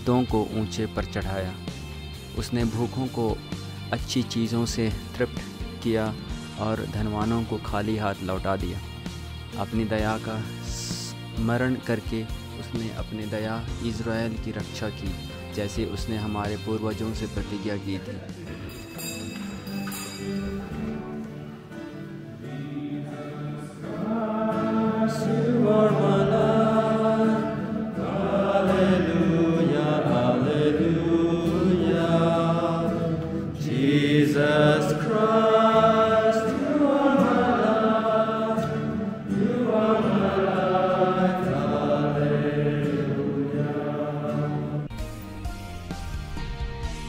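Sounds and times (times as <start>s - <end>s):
group singing a slow hymn: 20.2s - 44.9s.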